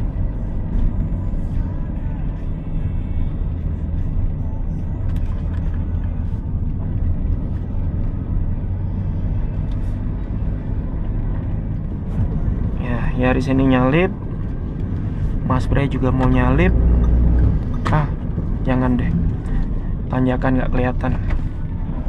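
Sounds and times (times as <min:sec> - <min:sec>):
car engine drone inside cabin: 0:00.0 - 0:22.0
tyre and road rumble: 0:00.0 - 0:22.0.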